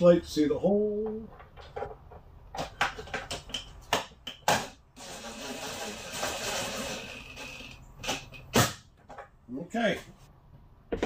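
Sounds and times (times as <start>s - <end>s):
cordless driver running: 5.0s - 7.8s.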